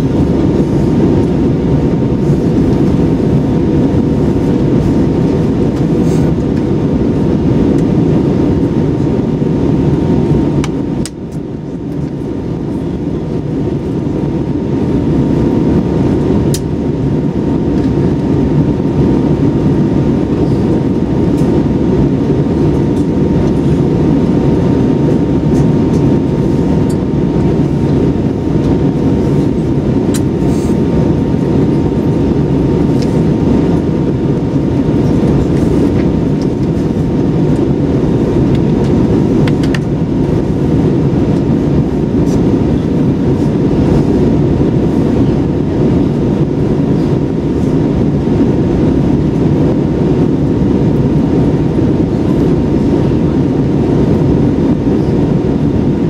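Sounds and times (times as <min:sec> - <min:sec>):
aircraft cabin engine rumble: 0:00.0 - 0:56.0.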